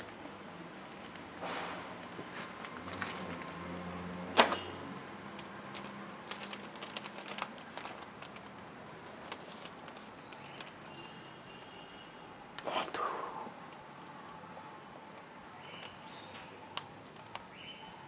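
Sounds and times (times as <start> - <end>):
paper rustling: 0.9 - 11.1
newspaper being opened: 1.0 - 11.1.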